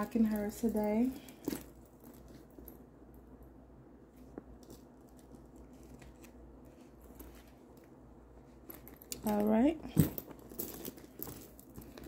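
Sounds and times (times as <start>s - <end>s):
leather bag rustling: 0.0s - 2.8s, 4.1s - 12.0s.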